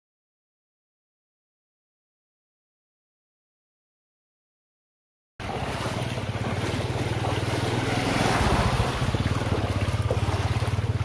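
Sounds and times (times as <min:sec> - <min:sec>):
vehicle engine running: 0:05.4 - 0:11.0
water rushing: 0:05.4 - 0:11.0.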